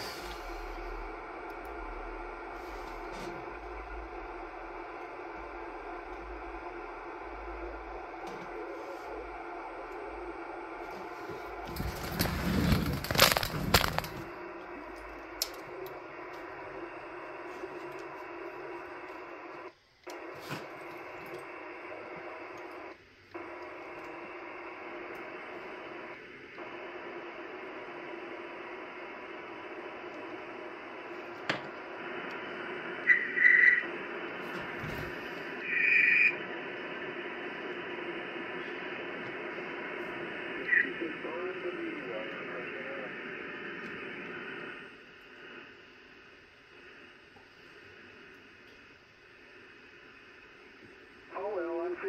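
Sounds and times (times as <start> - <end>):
radio receiver static: 0.0 - 52.0
heterodyne whistles: 33.0 - 33.8, 35.6 - 36.4.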